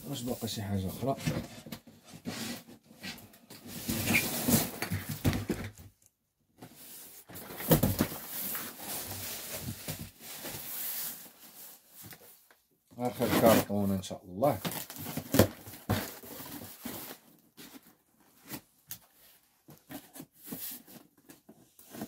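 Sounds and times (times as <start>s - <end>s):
cardboard box scraping and rustling: 2.1s - 5.4s.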